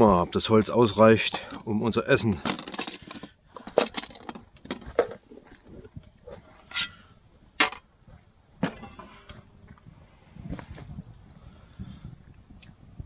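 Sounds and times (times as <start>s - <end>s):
metallic clinks and knocks: 2.2s - 5.2s.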